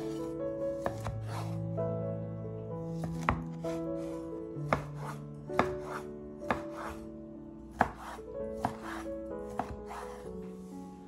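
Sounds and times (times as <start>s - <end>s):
soft background music: 0.0s - 11.0s
knife chopping on wooden board: 0.8s - 1.6s, 2.9s - 3.7s, 4.7s - 7.0s, 7.7s - 10.2s.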